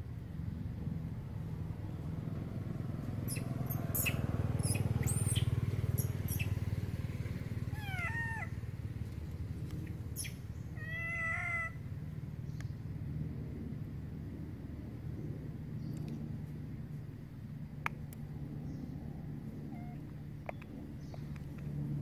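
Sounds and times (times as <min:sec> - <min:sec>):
macaque coo calls: 0:07.7 - 0:08.6, 0:10.2 - 0:11.8, 0:19.7 - 0:20.1.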